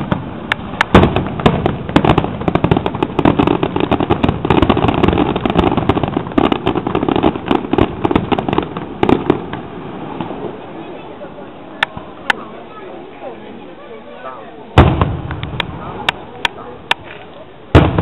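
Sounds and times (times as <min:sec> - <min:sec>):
fireworks bangs and crackles: 0:00.0 - 0:12.8, 0:14.7 - 0:18.0.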